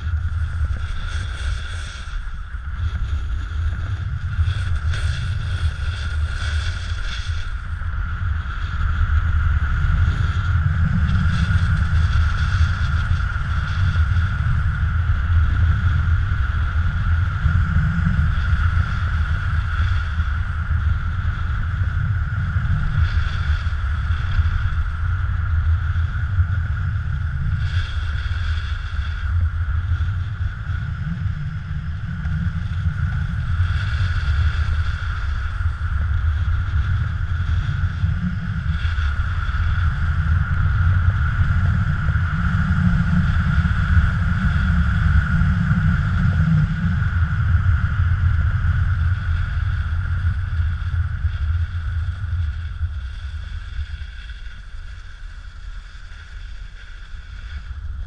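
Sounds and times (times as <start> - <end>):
snowboard scraping on snow: 0.0 - 14.6
wind rumbling on microphone: 0.0 - 58.0.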